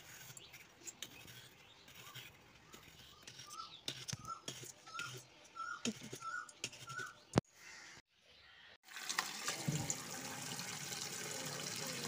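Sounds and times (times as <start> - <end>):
tap water running into bowl: 8.9 - 12.0.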